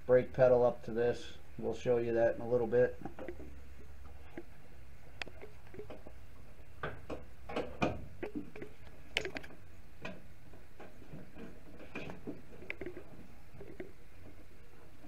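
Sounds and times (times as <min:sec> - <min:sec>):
steady low hum: 0:00.0 - 0:15.0
light clicks and metallic knocks: 0:03.0 - 0:03.6.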